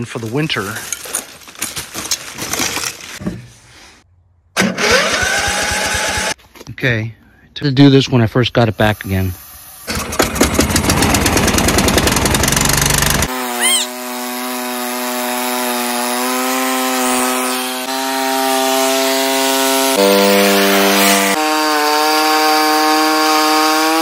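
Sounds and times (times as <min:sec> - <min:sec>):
lawn tractor engine running: 0:09.9 - 0:13.3.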